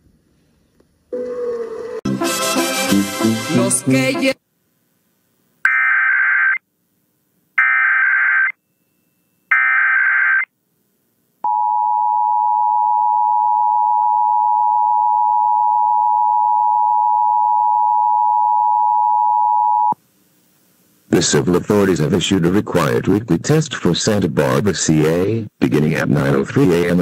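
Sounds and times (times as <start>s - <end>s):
warbling digital data screech: 5.7s - 6.6s, 7.6s - 8.6s, 9.5s - 10.5s.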